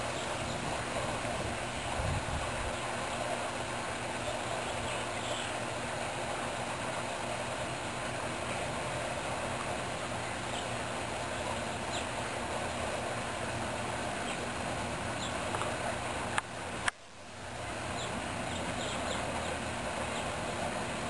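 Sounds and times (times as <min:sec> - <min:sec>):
distant traffic: 0:00.0 - 0:21.0
faint bird chirps: 0:18.0 - 0:20.3.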